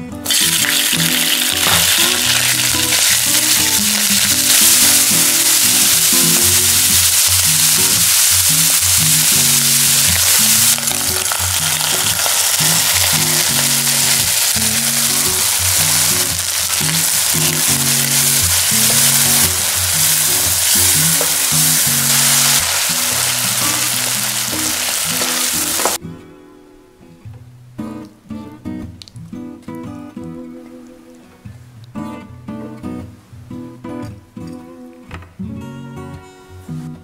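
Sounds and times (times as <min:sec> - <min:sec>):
background music: 0:00.0 - 0:27.0
meat sizzling in hot oil: 0:00.2 - 0:26.0.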